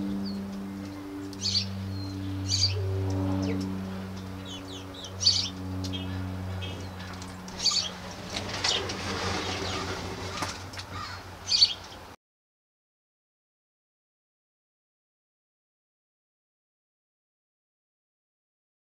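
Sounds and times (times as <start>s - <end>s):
small birds chirping: 0.0s - 12.1s
low steady hum: 0.0s - 12.2s.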